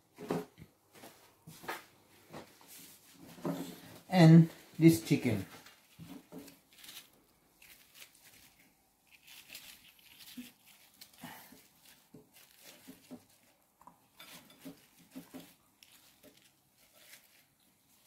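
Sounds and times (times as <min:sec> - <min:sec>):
faint crinkles: 0:05.4 - 0:18.0.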